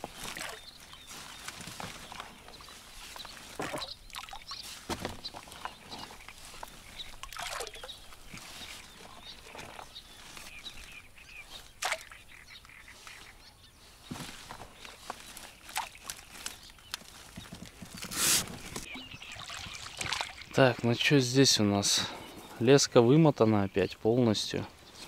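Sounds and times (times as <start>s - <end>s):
rustles: 0.0s - 18.9s.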